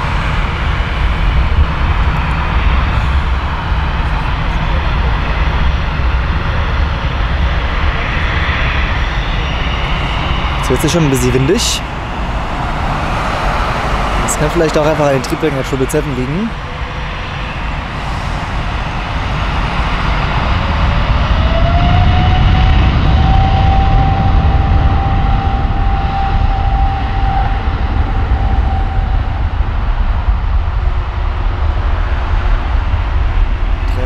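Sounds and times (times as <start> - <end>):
jet engine whine: 0.0 - 34.0
jet engines deep rumble: 0.0 - 34.0.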